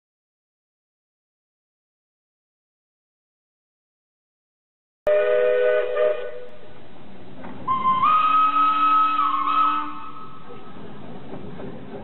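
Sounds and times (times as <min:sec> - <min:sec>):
steam locomotive whistle: 0:05.1 - 0:06.6, 0:07.7 - 0:10.6.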